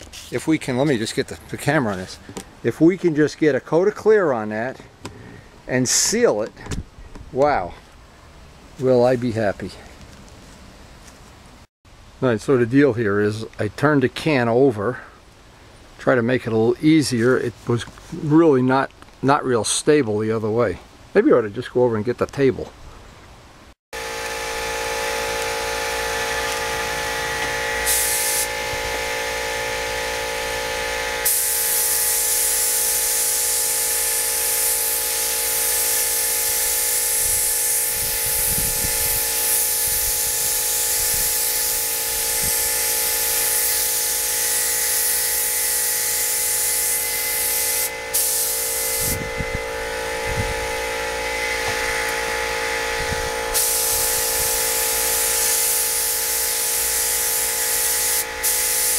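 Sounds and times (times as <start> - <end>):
spray gun hissing: 0.0 - 0.4, 24.1 - 58.9
motor whining: 24.0 - 31.7, 45.9 - 55.4.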